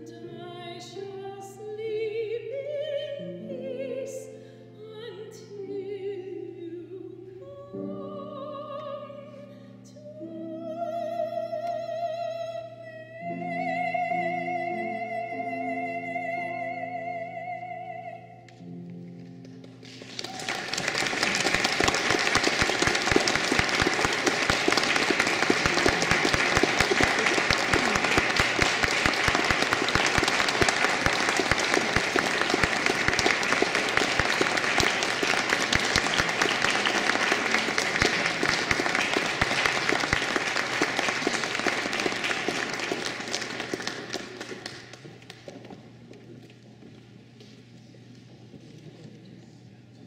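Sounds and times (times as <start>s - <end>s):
audience applauding: 19.6s - 45.7s.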